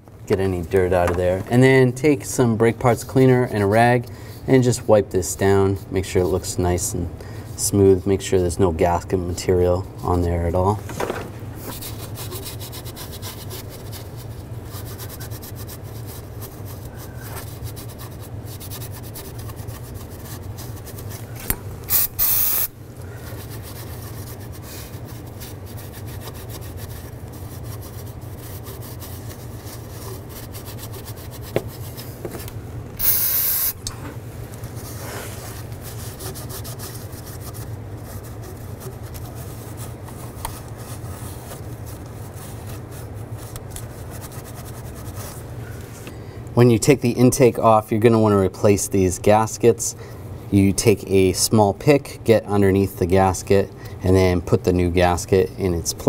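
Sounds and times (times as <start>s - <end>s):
aerosol spray hissing: 21.9s - 22.7s, 33.0s - 33.8s.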